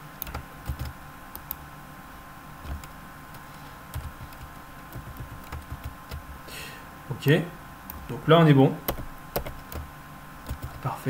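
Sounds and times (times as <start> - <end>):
computer keyboard typing: 0.2 - 1.6, 2.6 - 6.4, 8.9 - 11.0.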